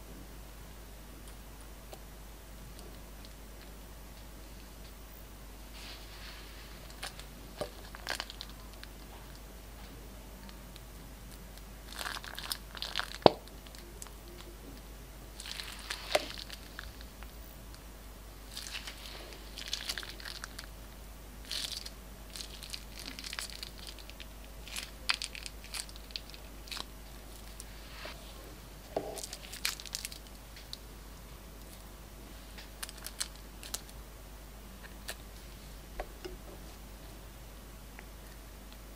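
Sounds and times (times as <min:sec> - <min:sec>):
crinkling plastic bag: 0:05.8 - 0:09.4, 0:11.8 - 0:14.5, 0:15.4 - 0:17.2, 0:18.5 - 0:20.7, 0:21.4 - 0:28.1, 0:29.0 - 0:30.4, 0:32.6 - 0:34.0
sticky slime crackle: 0:06.9 - 0:09.4, 0:11.3 - 0:14.5, 0:15.4 - 0:17.2, 0:18.5 - 0:20.7, 0:21.4 - 0:27.7, 0:29.0 - 0:30.8.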